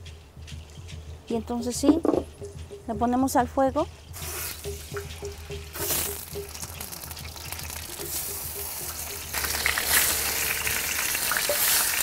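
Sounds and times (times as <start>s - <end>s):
chicken sizzling in hot fat: 4.1s - 12.0s.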